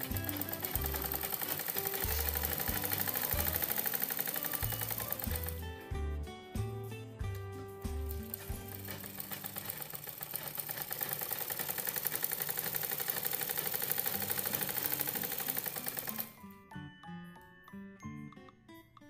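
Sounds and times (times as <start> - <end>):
sewing machine stitching: 0.0 - 5.7, 7.3 - 16.4.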